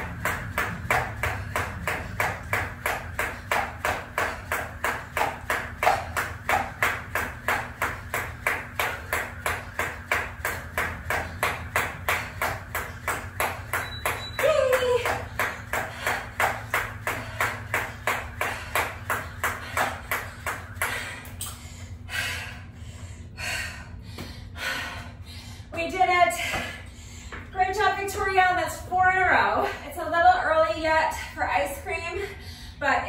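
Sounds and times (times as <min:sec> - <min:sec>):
jump rope ticking on ground: 0:00.0 - 0:21.6.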